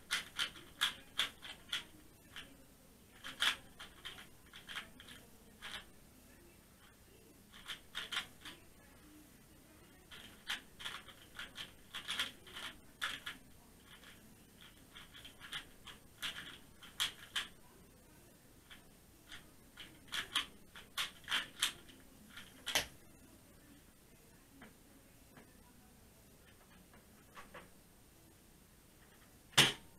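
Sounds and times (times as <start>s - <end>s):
puzzle cube plastic clicks: 0.0s - 2.5s, 3.2s - 5.9s, 7.5s - 8.6s, 10.1s - 17.6s, 18.7s - 23.0s.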